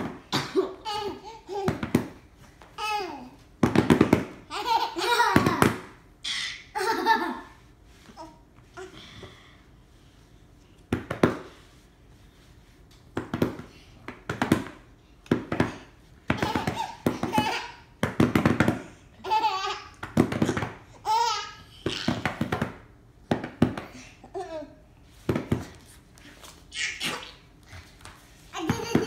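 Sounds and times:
baby laughing: 0.5 - 1.8, 4.5 - 7.5, 16.4 - 17.9, 19.2 - 20.0, 21.0 - 22.2, 28.6 - 29.0.

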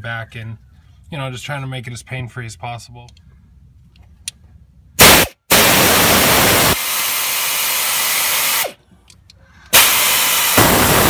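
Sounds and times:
loud air hiss: 5.0 - 8.8, 9.7 - 11.0
air ratchet running: 6.6 - 8.8, 9.7 - 11.0.

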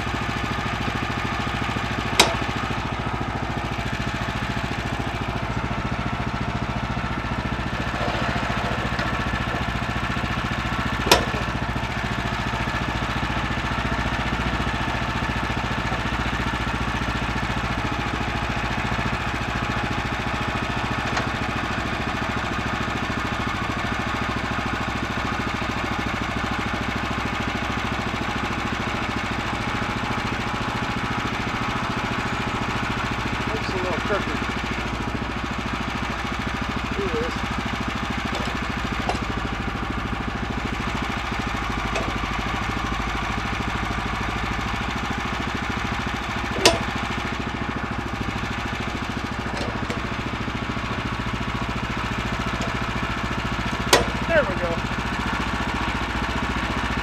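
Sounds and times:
sawmill gas engine running: 0.0 - 57.0
sharp knocks: 2.2 - 2.5, 11.0 - 11.5, 46.6 - 46.9, 53.9 - 54.2.

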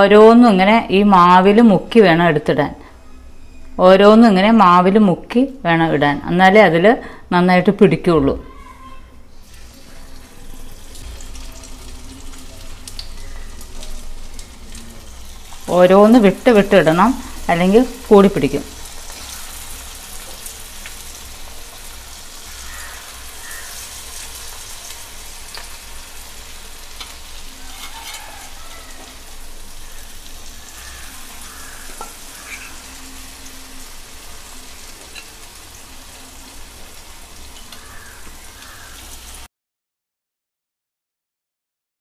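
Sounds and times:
food deep-frying in oil: 9.4 - 39.5
oil popping and crackling: 9.5 - 15.7, 17.1 - 33.0.

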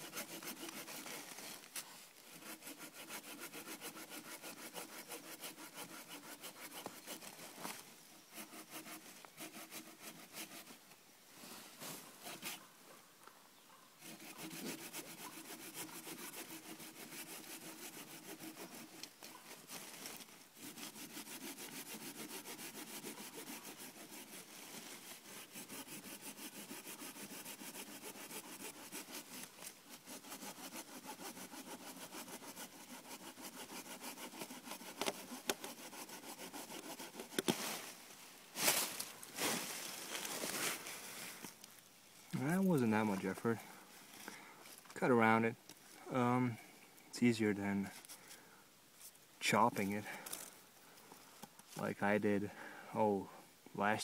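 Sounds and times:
hand saw cutting a log: 0.0 - 1.6, 2.2 - 10.8, 12.2 - 12.6, 14.0 - 37.7.

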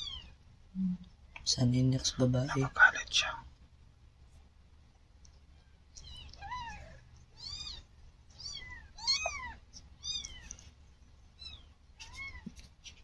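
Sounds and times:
kitten mewing: 6.0 - 10.6.

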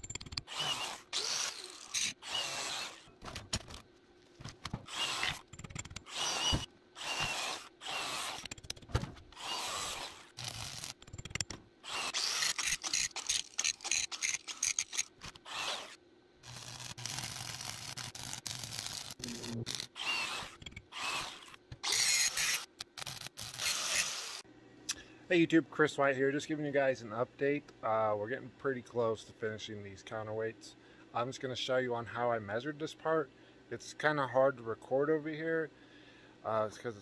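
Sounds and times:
angle grinder grinding steel: 0.4 - 3.1, 6.0 - 8.5, 9.4 - 11.0, 11.9 - 24.4.

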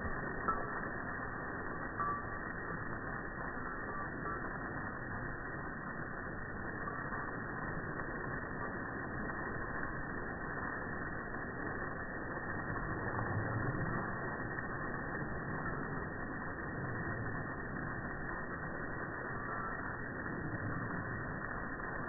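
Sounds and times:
water spraying from a hose: 0.0 - 22.0.

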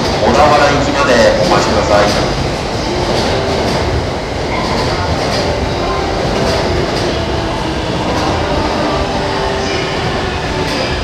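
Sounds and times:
clacks over rail joints: 0.0 - 5.6, 6.2 - 7.3
train wheels rumbling on rail: 0.0 - 11.0.

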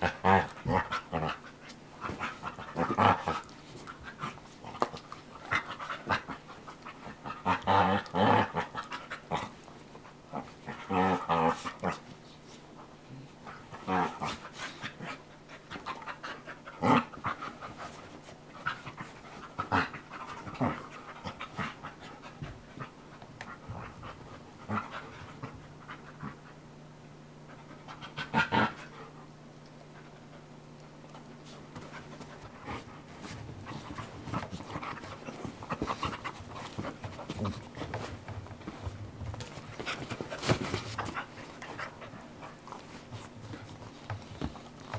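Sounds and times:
dogs panting: 27.4 - 44.9
dogs scuffling: 31.1 - 44.9.

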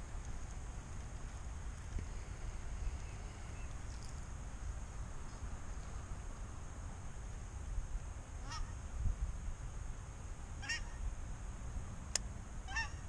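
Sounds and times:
geese honking: 8.4 - 8.7, 10.6 - 11.0, 12.6 - 13.0.

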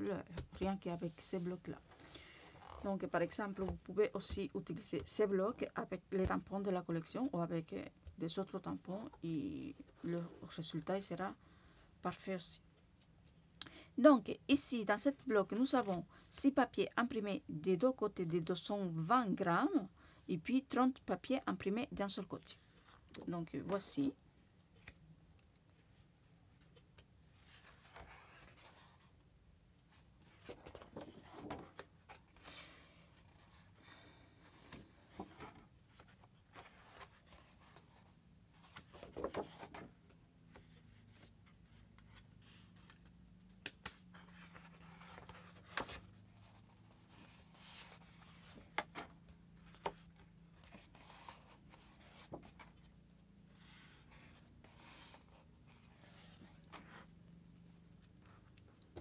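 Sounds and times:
paper sheet flapping: 38.8 - 39.9.

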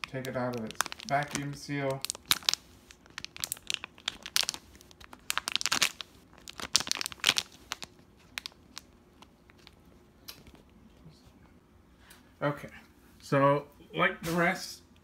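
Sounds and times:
foil pouch crinkling: 0.0 - 9.8.

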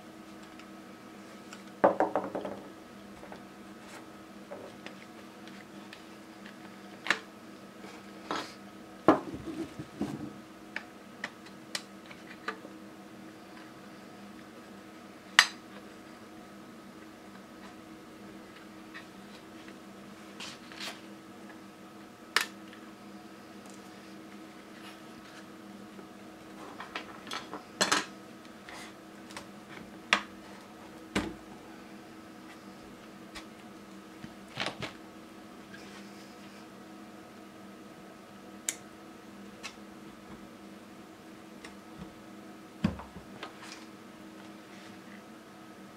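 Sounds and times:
faint steady hum: 0.0 - 45.9.

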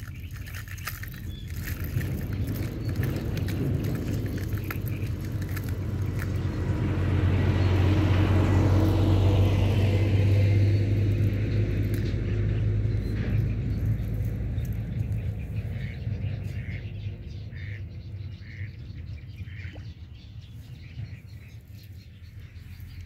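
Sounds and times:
vehicle engine passing by: 0.8 - 18.7.

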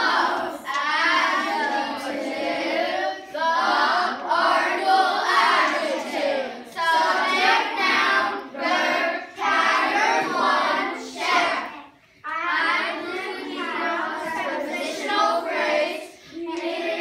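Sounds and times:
children chanting in unison: 0.0 - 17.0.

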